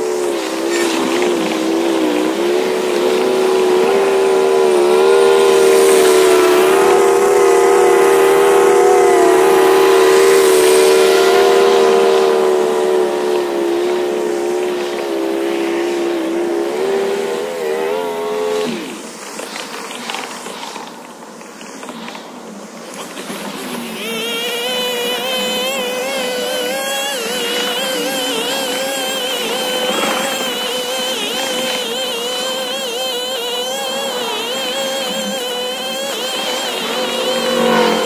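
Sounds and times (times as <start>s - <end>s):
lawn mower engine running: 0.0s - 18.8s, 23.5s - 38.0s.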